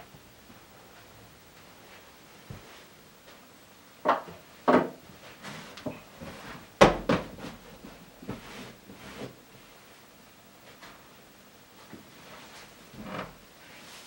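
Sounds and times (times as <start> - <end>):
objects knocking and clunking: 4.0 - 8.4.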